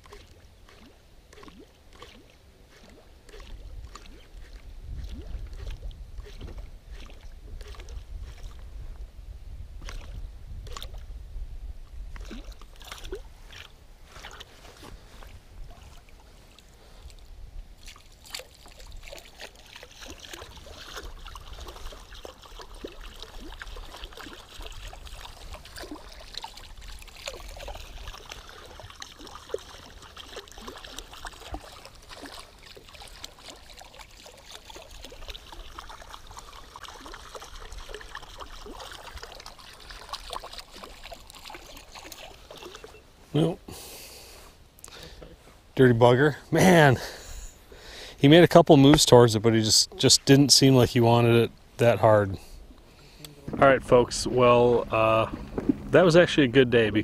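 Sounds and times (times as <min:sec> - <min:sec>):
lure gurgling and splashing water: 0:00.0 - 0:08.7, 0:09.8 - 0:11.1, 0:12.1 - 0:14.5, 0:15.2 - 0:43.1, 0:53.5 - 0:57.0
wind rumble on microphone: 0:03.5 - 0:12.6, 0:53.4 - 0:57.0.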